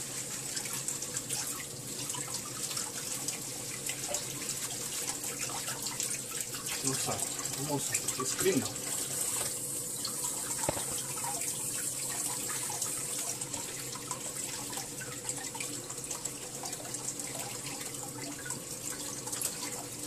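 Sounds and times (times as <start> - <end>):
tap running into steel sink: 10.4 - 11.4.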